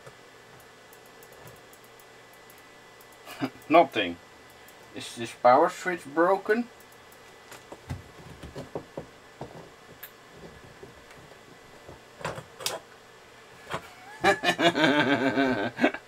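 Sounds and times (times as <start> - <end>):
man speaking: 3.7 - 4.2, 5.0 - 6.7.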